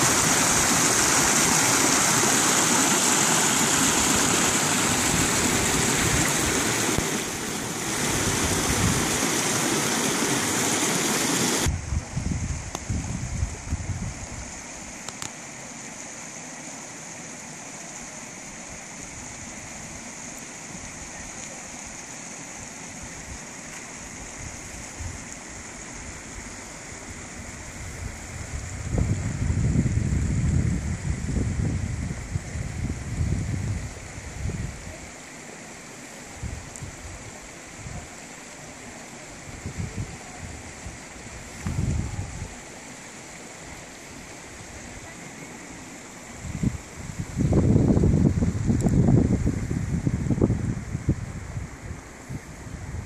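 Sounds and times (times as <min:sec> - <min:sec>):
creek water rushing: 0:00.0 - 0:53.0.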